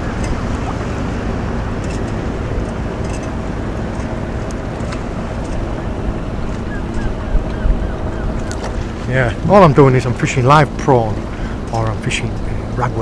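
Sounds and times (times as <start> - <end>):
motorboat engine drone: 0.0 - 13.0
water noise: 0.0 - 13.0
wind noise: 5.6 - 9.4.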